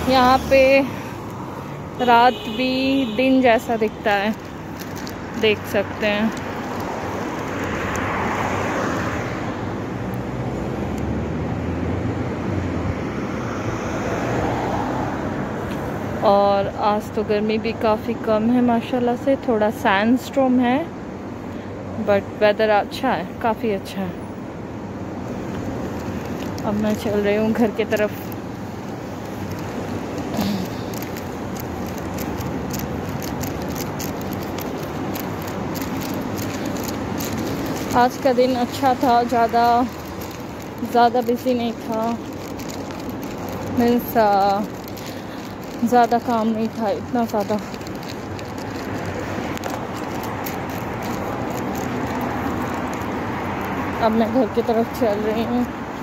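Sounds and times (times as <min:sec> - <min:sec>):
cars and tyres passing: 0:00.0 - 0:56.0
road traffic hum: 0:00.0 - 0:56.0
faint irregular ticks: 0:02.6 - 0:09.2, 0:25.2 - 0:56.0.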